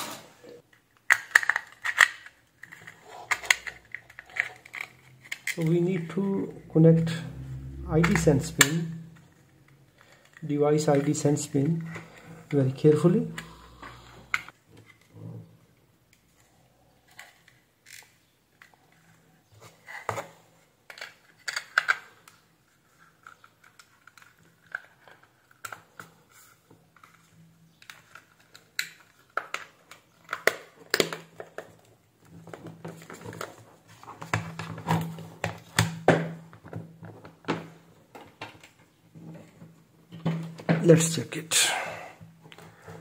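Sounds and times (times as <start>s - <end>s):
faint low hum: 2.8s - 10.8s.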